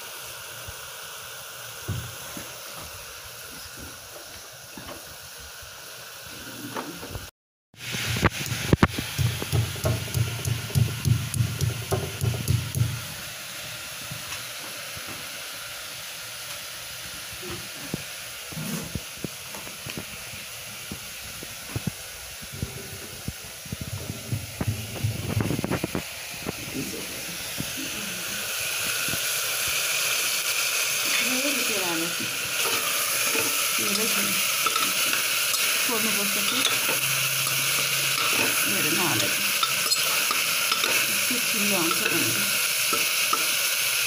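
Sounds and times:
food sizzling in pressure cooker: 0.0 - 44.0
steady hiss: 0.0 - 44.0
stone pestle pounding in mortar: 8.4 - 13.0.

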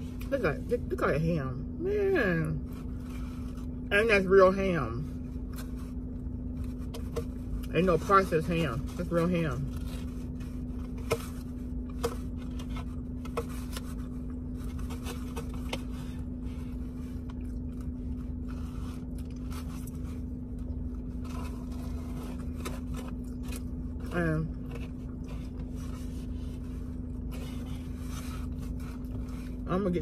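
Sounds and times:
steady low hum: 0.0 - 30.0
person chewing food: 10.6 - 24.0.

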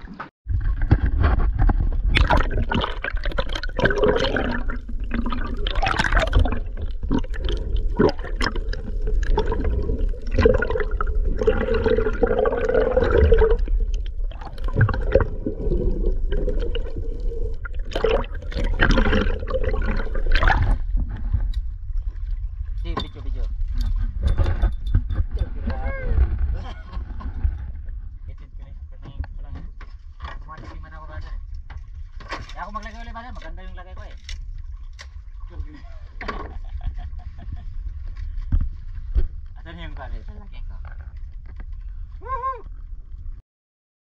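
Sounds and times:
water splashing and sloshing: 0.0 - 43.4
steady low rumble: 0.5 - 29.6.

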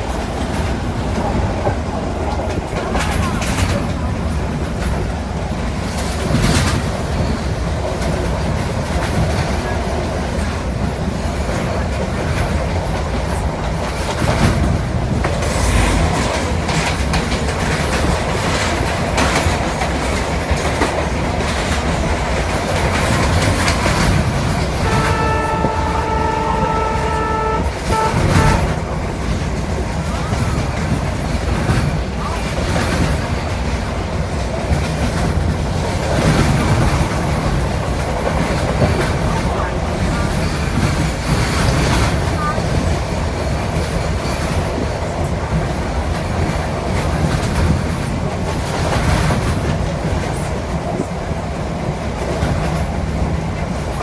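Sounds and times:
train wheels rumbling on rails: 0.0 - 54.0
train horn: 24.7 - 29.0.

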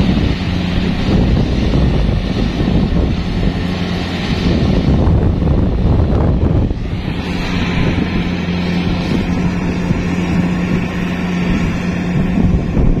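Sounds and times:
combine harvester engine drone: 0.0 - 13.0
wind buffeting microphone: 0.0 - 13.0.

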